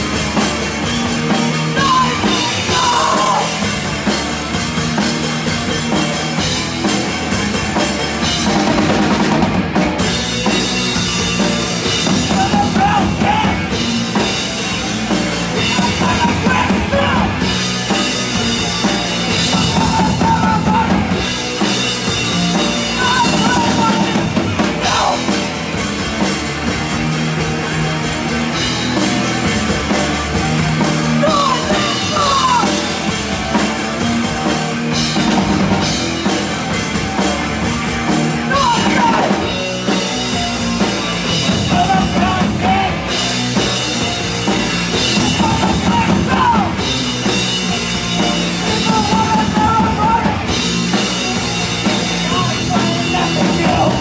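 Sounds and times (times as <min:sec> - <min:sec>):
bass guitar: 0:00.0 - 0:54.0
distorted electric guitar: 0:00.0 - 0:54.0
drum kit: 0:00.0 - 0:54.0
woman yelling vocals: 0:01.8 - 0:03.6, 0:31.2 - 0:32.8.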